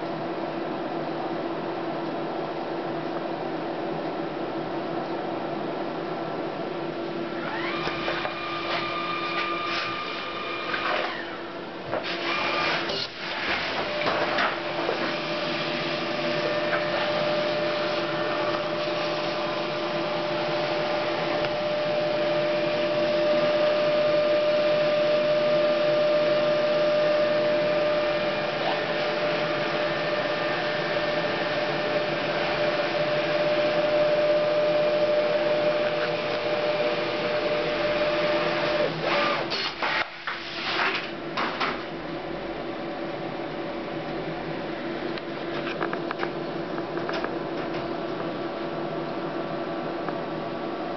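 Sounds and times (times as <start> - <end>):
label printer whine: 7.1 - 42.0.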